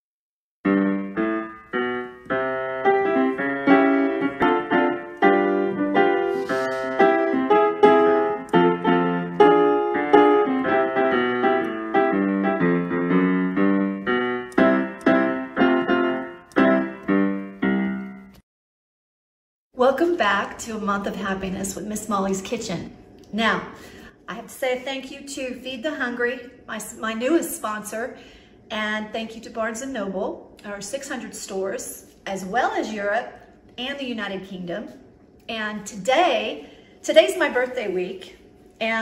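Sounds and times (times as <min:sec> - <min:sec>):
piano music: 0:00.6 - 0:18.4.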